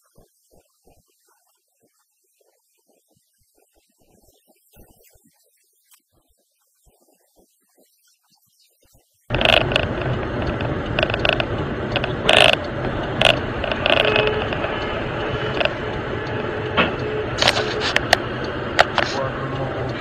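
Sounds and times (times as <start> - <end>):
road and engine rumble: 9.3 - 20.0
sharp clicks and rattles: 9.3 - 20.0.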